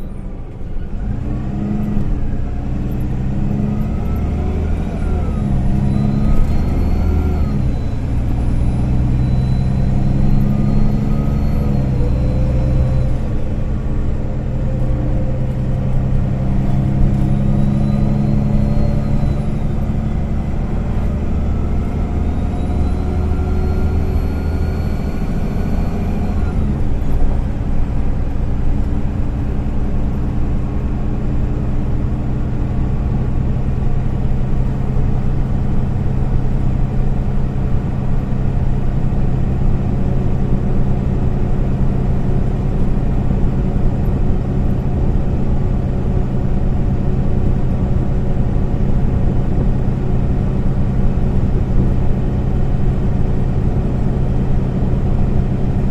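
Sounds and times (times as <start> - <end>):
bus engine drone: 0.0 - 55.9
road rumble: 0.0 - 55.9
rising whine: 0.1 - 31.0.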